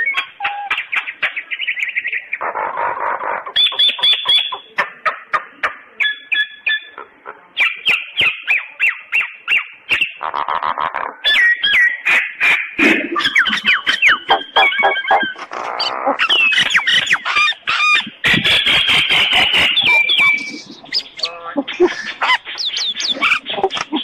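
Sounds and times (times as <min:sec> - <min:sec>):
bird harsh squawks: 0:06.0 - 0:24.0.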